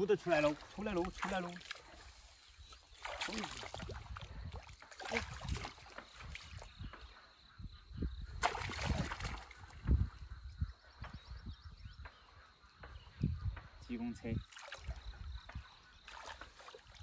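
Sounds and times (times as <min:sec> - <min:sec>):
legs wading through muddy water: 0:00.0 - 0:07.1, 0:08.4 - 0:09.8, 0:14.4 - 0:17.0.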